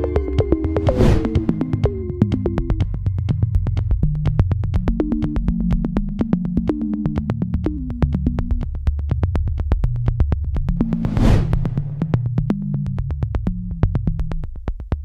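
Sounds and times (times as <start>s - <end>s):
synthesizer bass line: 0.0s - 3.4s
fast clicking beat: 0.0s - 11.0s.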